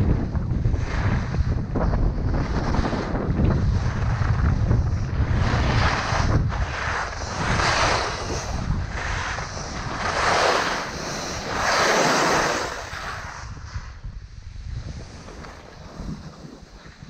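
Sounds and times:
wind buffeting microphone: 0.0 - 17.0
skis scraping on snow: 2.4 - 14.0.

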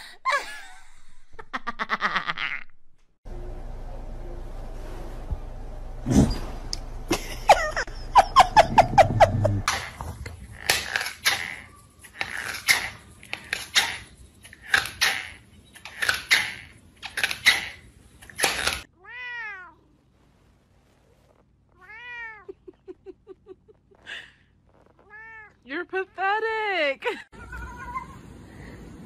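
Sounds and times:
cat meowing: 19.0 - 19.8, 21.8 - 22.5, 25.0 - 25.6, 27.4 - 28.3.

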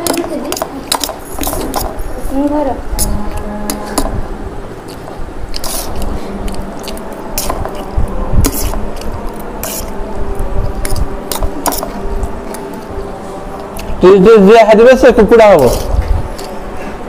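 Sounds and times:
forks scraping on plates: 0.0 - 2.2, 2.9 - 4.2, 4.9 - 10.0
steady low hum: 0.0 - 17.0
wet slurping and chewing: 4.7 - 14.0, 15.6 - 16.8.

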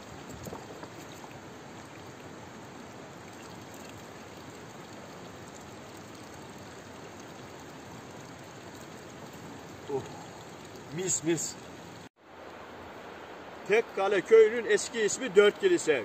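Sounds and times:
water trickling from a spout: 0.0 - 12.1.

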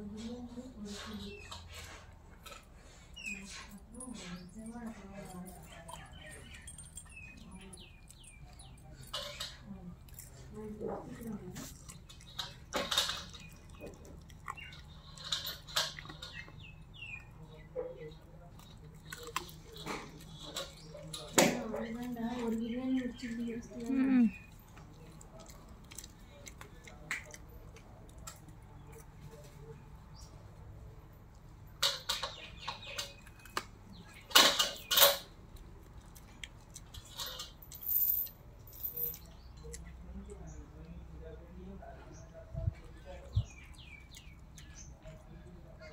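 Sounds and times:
dog chewing food: 9.6 - 29.8.

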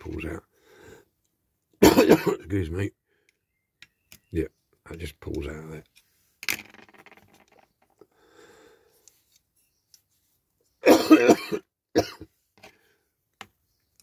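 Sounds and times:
man coughing: 1.8 - 2.5, 10.8 - 12.3.

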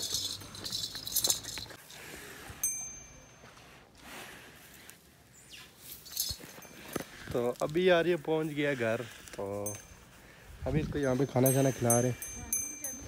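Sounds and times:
ringing metal clink: 0.0 - 1.8, 2.6 - 3.6, 6.0 - 7.1, 9.6 - 10.1, 11.0 - 13.0
faint metallic jingling: 0.0 - 1.9, 2.6 - 3.8, 5.8 - 8.7, 9.4 - 13.0.

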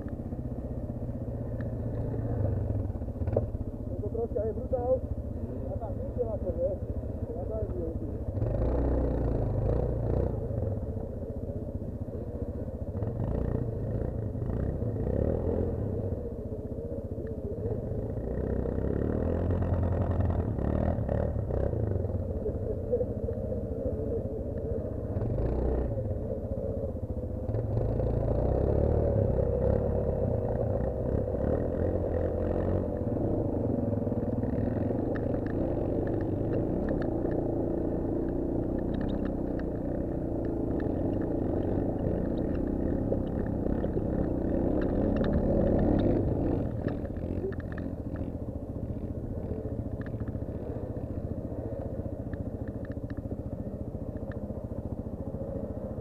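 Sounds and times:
knocks and clatter from rough ride: 3.0 - 4.6
quad bike engine revving: 7.6 - 11.0, 12.2 - 16.4, 17.3 - 56.0.

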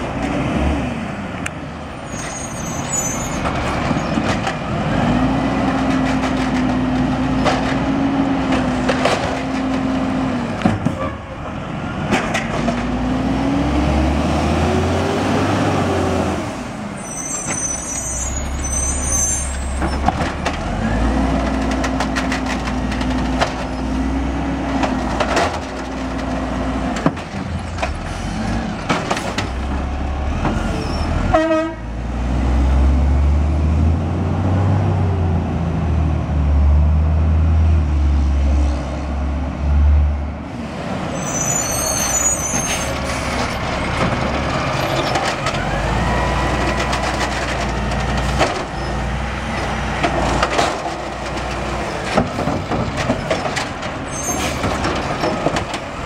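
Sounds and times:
diesel truck engine rumbling: 0.0 - 56.0
cart banging against hopper: 28.7 - 30.7, 49.5 - 56.0.

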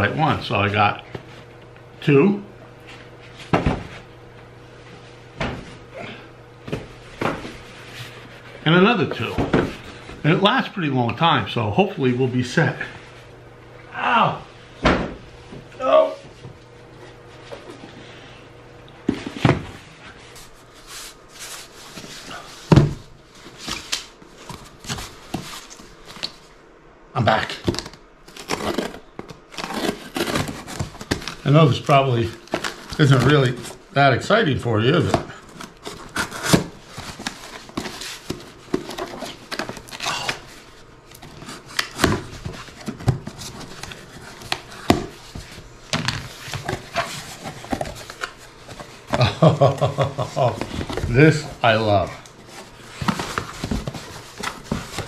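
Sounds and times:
cardboard rustling and scraping: 19.0 - 26.5, 27.4 - 33.8, 34.9 - 55.0.

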